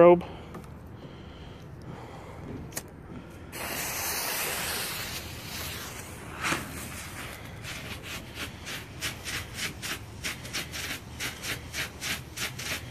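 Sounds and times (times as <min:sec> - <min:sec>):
firework fuse hissing: 0:03.5 - 0:12.9.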